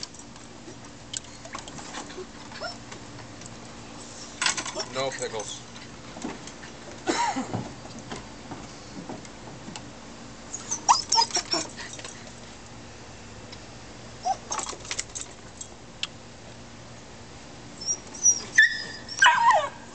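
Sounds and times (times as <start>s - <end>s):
dog whining and yipping: 2.6s - 2.8s, 10.5s - 12.0s, 14.2s - 14.8s, 17.8s - 19.9s.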